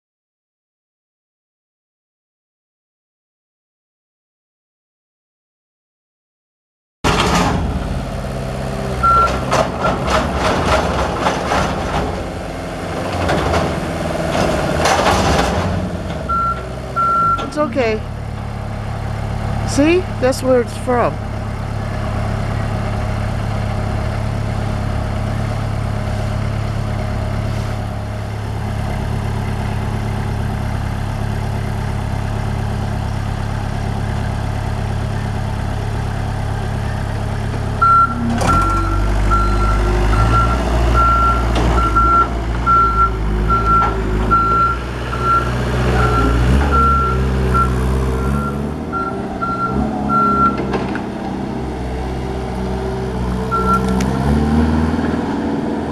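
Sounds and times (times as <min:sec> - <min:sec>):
forklift engine running: 0:07.1 - 0:55.9
backup alarm beeping: 0:09.0 - 0:09.4, 0:16.3 - 0:17.6, 0:37.8 - 0:50.6.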